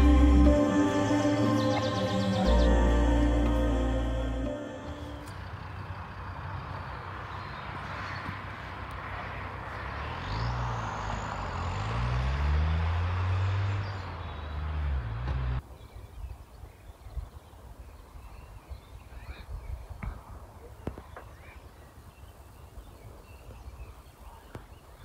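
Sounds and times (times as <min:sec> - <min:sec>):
vehicle driving past: 0:00.0 - 0:15.6
faint outdoor background: 0:00.0 - 0:25.0
engine shifting gears: 0:09.7 - 0:15.6.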